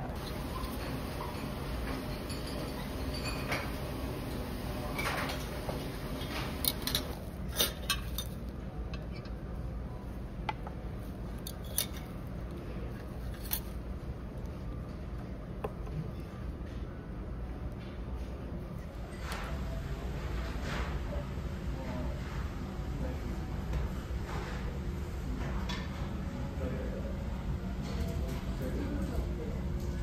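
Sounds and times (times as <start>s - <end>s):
low background hum: 0.0s - 30.0s
metal tongs clinking on trays: 0.2s - 5.6s, 6.2s - 9.4s, 11.4s - 12.1s.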